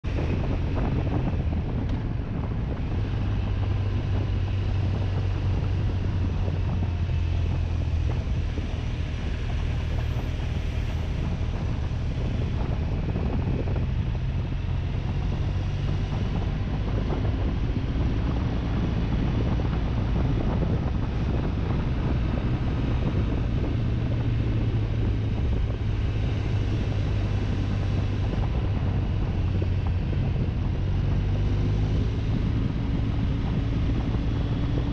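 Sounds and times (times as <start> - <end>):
motorcycle engine running: 0.0 - 34.9
wind rushing over microphone: 0.0 - 34.9.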